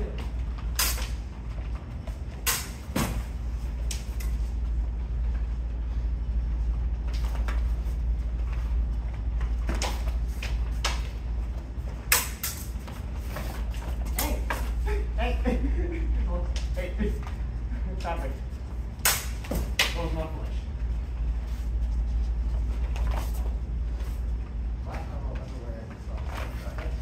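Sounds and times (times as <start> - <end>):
footwork on foam mats: 0.0 - 27.0
steady low hum: 0.0 - 27.0
sabers clacking: 0.7 - 1.2, 2.4 - 3.0, 12.0 - 12.8.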